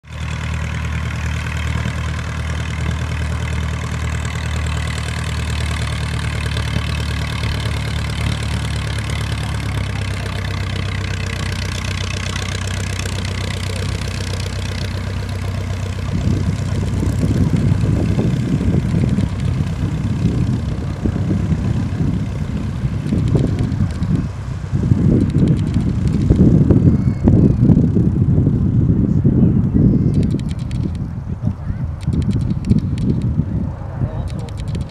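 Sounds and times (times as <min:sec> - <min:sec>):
biplane piston engine running: 0:00.1 - 0:34.9
wind buffeting microphone: 0:13.9 - 0:34.9.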